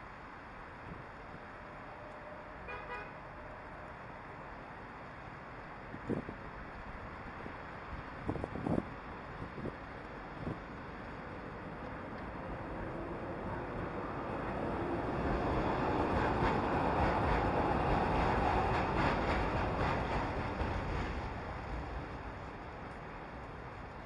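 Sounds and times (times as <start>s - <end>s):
tram wheels rumbling on rails: 0.0s - 24.0s.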